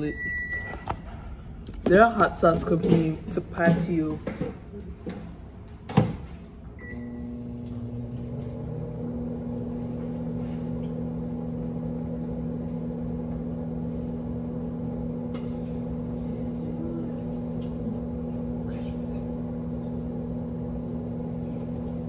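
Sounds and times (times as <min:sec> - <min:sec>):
microwave oven humming: 0:05.5 - 0:22.0.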